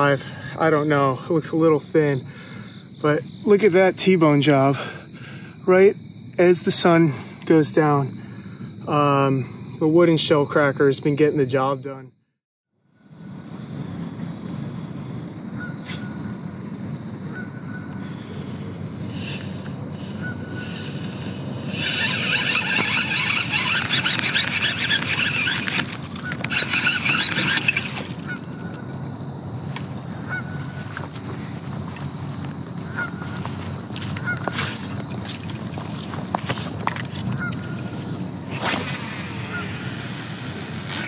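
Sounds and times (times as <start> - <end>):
geese honking: 20.0 - 28.7, 30.2 - 31.5, 32.8 - 35.0, 37.3 - 38.0.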